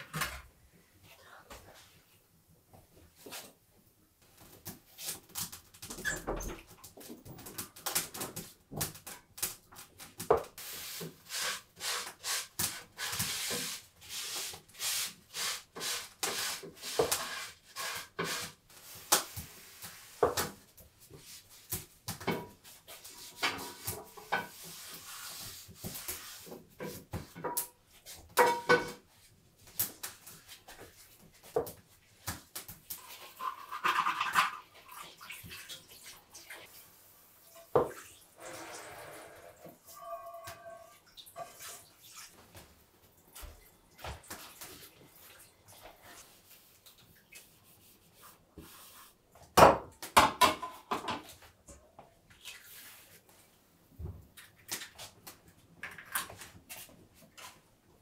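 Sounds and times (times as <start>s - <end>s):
dishes and pots set down: 28.4s - 29.0s, 49.7s - 51.3s.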